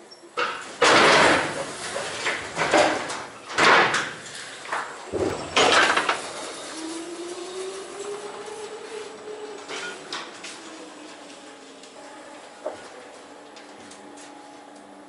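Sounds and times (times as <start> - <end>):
forklift clattering over steel plate: 0.4 - 6.7.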